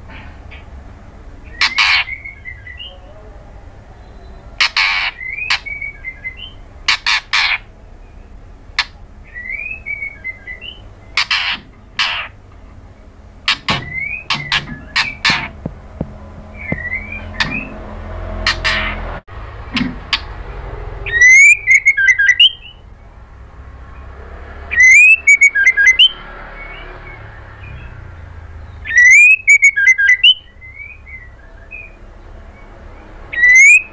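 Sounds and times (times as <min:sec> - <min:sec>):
harsh rasping bird calls: 0:00.0 - 0:33.9
bird whistling phrases: 0:04.0 - 0:07.6, 0:09.3 - 0:12.3, 0:13.7 - 0:15.5, 0:21.1 - 0:22.8, 0:24.7 - 0:26.2, 0:28.8 - 0:32.0, 0:33.3 - 0:33.9.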